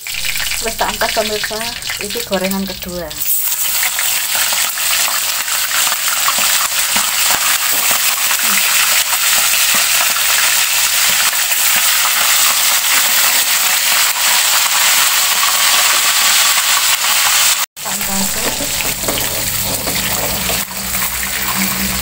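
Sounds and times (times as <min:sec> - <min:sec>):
chicken deep-frying in oil: 0:00.0 - 0:22.0.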